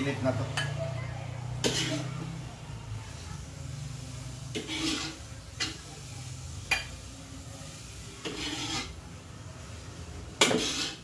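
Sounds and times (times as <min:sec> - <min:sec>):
metal ladle scraping wok: 0:01.4 - 0:02.5, 0:03.9 - 0:09.2, 0:10.2 - 0:11.0.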